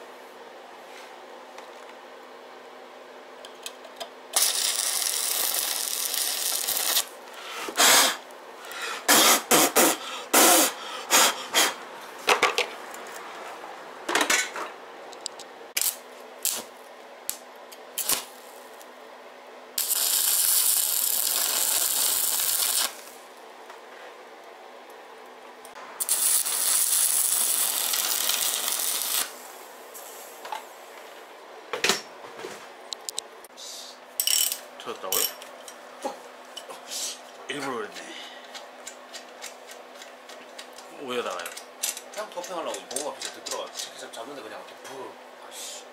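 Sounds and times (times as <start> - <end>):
arc welding crackle and hiss: 4.3 - 8.4, 15.7 - 18.9, 19.8 - 23.4, 25.7 - 31.0.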